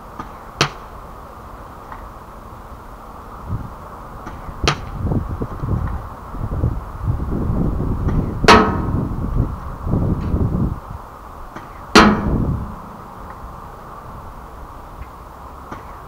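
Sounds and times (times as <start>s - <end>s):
pellet hitting metal target: 8.5s - 9.0s, 12.0s - 13.0s
low rumble: 12.0s - 13.6s.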